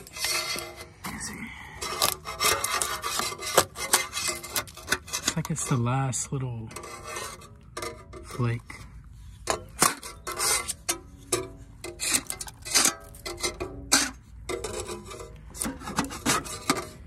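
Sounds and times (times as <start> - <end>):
scraper scraping paint off hull: 1.8 - 5.9.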